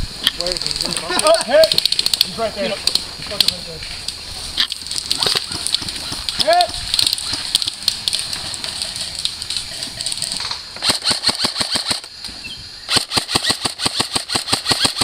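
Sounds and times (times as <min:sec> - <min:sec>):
scattered clicks: 0:00.2 - 0:12.1, 0:12.9 - 0:15.0
airsoft rifle full-auto fire: 0:10.8 - 0:12.1, 0:12.9 - 0:15.0.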